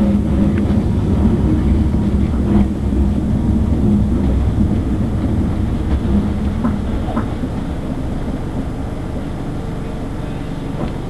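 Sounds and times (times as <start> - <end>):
steady low hum: 0.0 - 11.0
train running gear rumble: 0.0 - 11.0.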